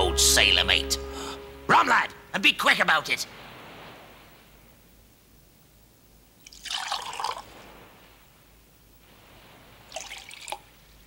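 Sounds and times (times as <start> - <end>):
liquid pouring into mug: 6.5 - 7.4.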